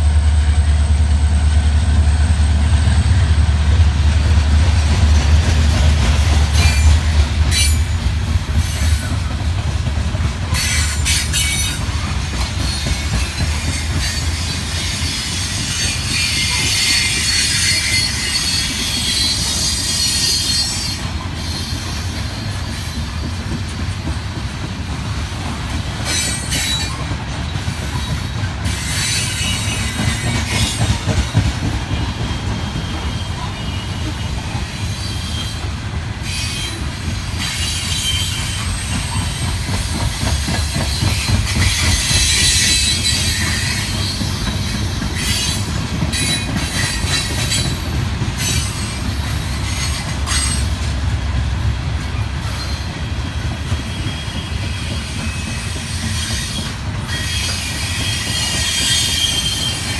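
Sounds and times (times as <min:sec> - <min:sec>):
locomotive engine drone: 0:00.0 - 0:10.3
train wheels rumbling on track: 0:00.0 - 0:59.9
wheel squeal: 0:40.5 - 0:47.8, 0:53.7 - 0:59.9.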